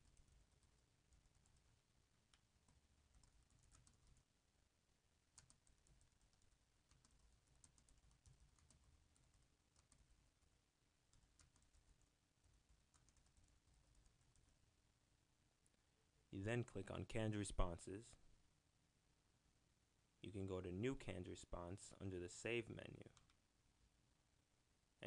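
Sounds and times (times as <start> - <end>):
faint keyboard typing: 0.0 - 4.3, 5.2 - 14.6, 23.1 - 23.4.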